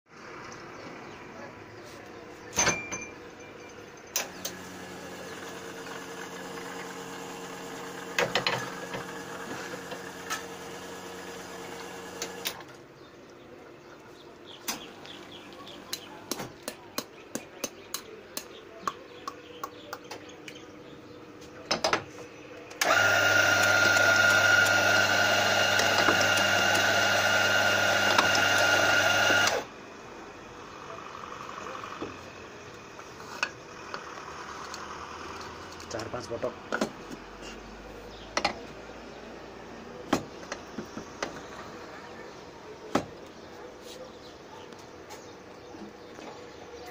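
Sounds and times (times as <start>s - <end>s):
coffee grinder whirring: 4.3s - 12.6s, 22.8s - 29.7s
sharp clicks and knocks: 38.3s - 38.7s.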